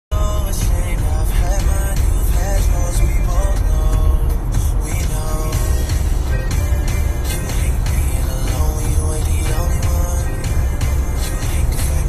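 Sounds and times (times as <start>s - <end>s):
heavy low bass: 0.1s - 12.0s.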